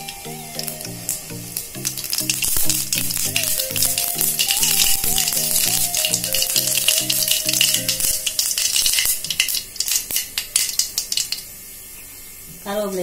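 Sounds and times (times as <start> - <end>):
background music: 0.0 - 9.2
seeds popping in hot oil: 1.1 - 11.6.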